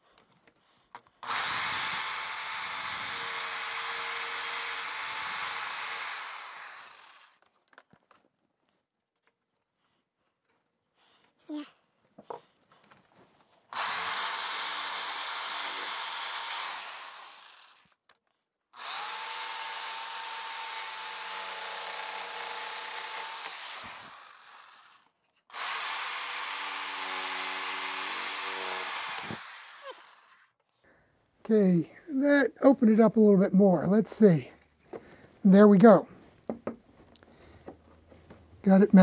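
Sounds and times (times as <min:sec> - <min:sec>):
jigsaw cutting: 0:01.2 - 0:07.5, 0:13.7 - 0:18.0, 0:18.8 - 0:30.6.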